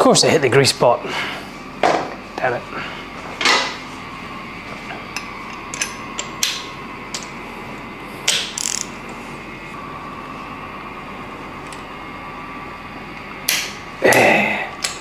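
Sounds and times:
socket ratchet clicking: 0:08.3 - 0:08.9.

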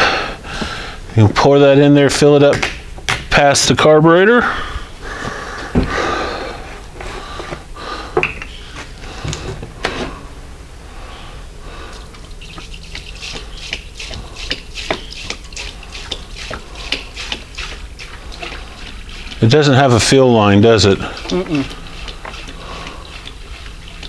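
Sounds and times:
liquid pouring and splashing: 0:12.1 - 0:24.0.

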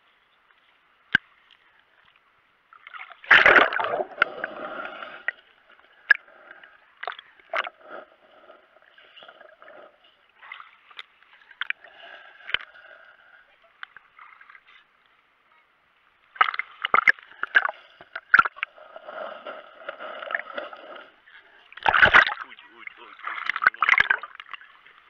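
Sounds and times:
water lapping and gurgling: 0:01.1 - 0:15.4, 0:16.0 - 0:25.0
sea water splashing and sloshing: 0:02.7 - 0:14.9, 0:16.3 - 0:25.0.

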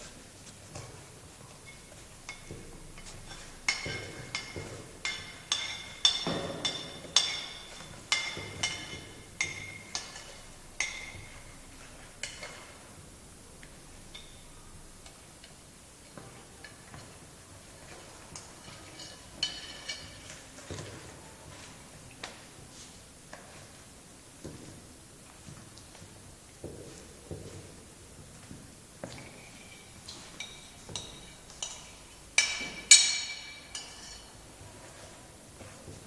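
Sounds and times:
spoon clinking against dishes: 0:18.4 - 0:20.5, 0:29.0 - 0:34.4.

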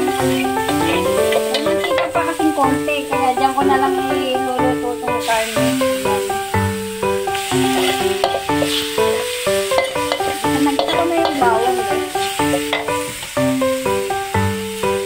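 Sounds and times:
metal spatula scraping wok: 0:00.0 - 0:02.7, 0:07.1 - 0:13.4
background music: 0:00.0 - 0:15.0
meat sizzling in a wok: 0:00.0 - 0:15.0.

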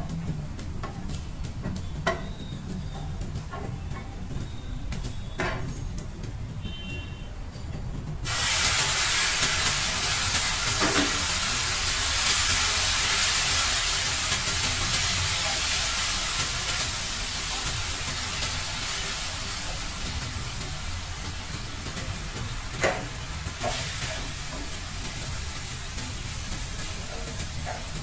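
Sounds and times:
sauce sizzling in a frying pan: 0:08.3 - 0:28.0.

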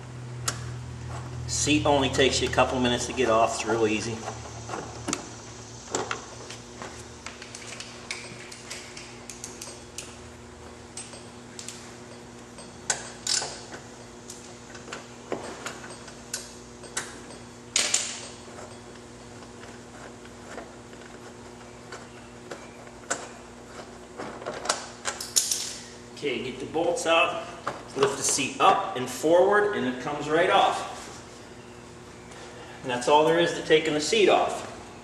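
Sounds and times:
steady hum: 0:00.0 - 0:35.0
allen wrench clicking on bolts: 0:07.5 - 0:10.2, 0:10.9 - 0:18.5, 0:24.6 - 0:25.8.

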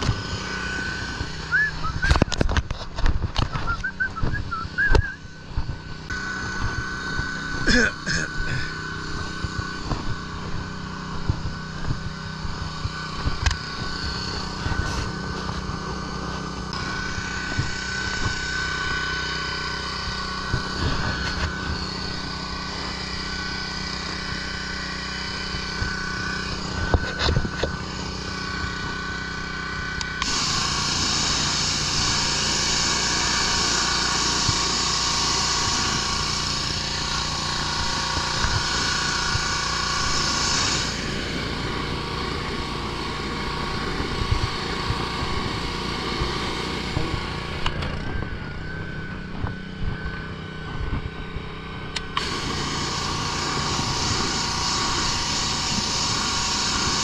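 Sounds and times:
pressure washer engine running: 0:00.0 - 0:57.0
water jet hissing on wood: 0:52.2 - 0:57.0.

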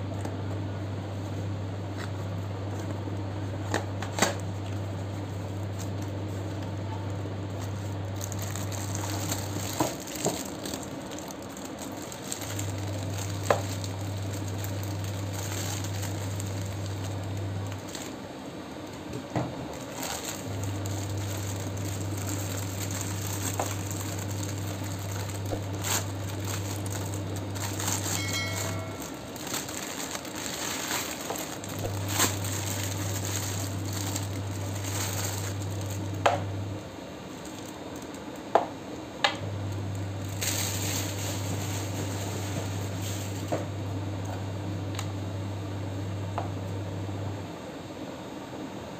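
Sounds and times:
low steady hum: 0:00.0 - 0:48.9
plastic bag crinkling: 0:07.5 - 0:18.2, 0:18.8 - 0:36.2, 0:37.3 - 0:38.4, 0:39.8 - 0:43.5.

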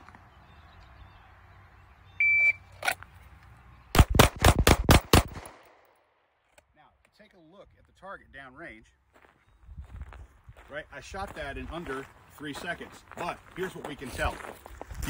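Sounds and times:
shot timer beep: 0:02.2 - 0:02.6
pistol shots: 0:03.9 - 0:05.9.

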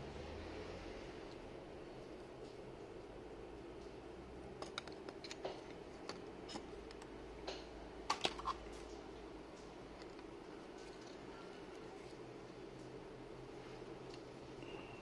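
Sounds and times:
faint steady hum: 0:00.0 - 0:15.0
phone parts clicking and tapping: 0:04.6 - 0:08.6.

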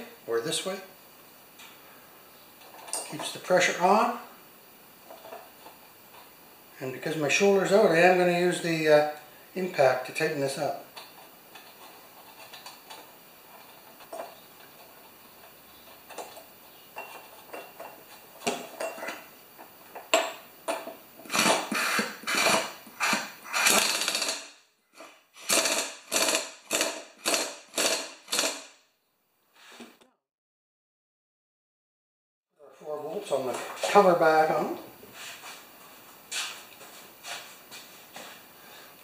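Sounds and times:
air impact wrench bursts: 0:21.2 - 0:24.6, 0:25.4 - 0:28.7.

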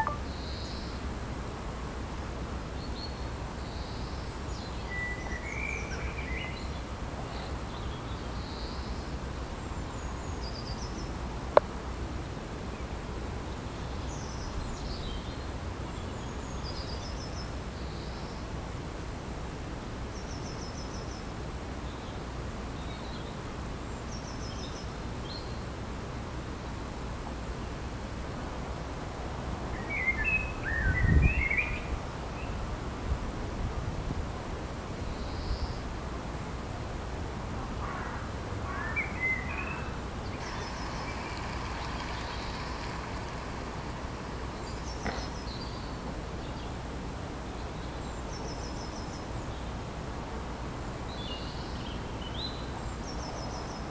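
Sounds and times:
small birds chirping: 0:00.0 - 0:00.9, 0:37.8 - 0:49.8
low background rumble: 0:38.2 - 0:47.8.

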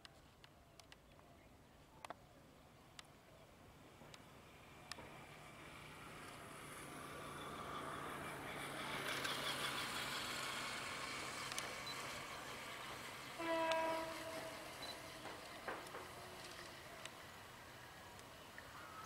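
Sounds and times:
vehicle horn: 0:13.4 - 0:14.6.

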